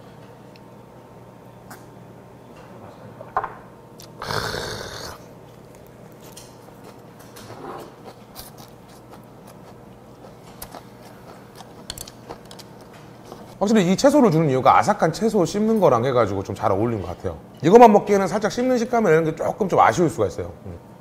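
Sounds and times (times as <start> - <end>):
quiet chewing: 4.9 - 13.6.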